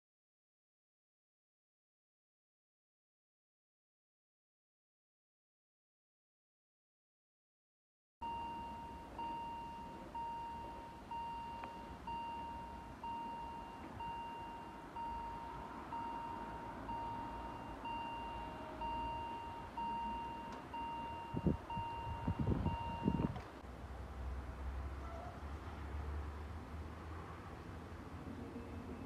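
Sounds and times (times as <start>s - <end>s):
level crossing warning bell: 8.2s - 23.4s.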